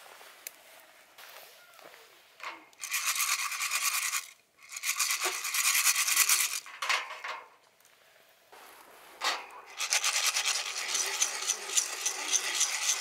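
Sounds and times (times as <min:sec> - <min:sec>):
fast rasping scraping strokes: 0:02.8 - 0:06.7, 0:09.7 - 0:13.0.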